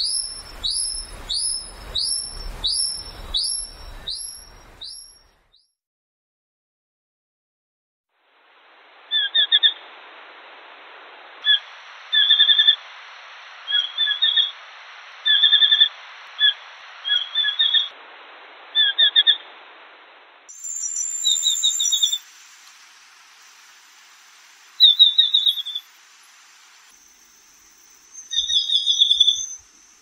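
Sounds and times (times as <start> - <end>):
high steady tone: 0.0 - 5.3
field recording hiss: 0.0 - 5.5, 8.1 - 30.0.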